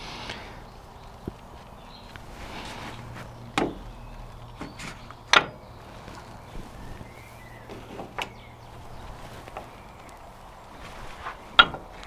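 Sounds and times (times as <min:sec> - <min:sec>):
metal tools clanking: 0:02.7 - 0:08.7.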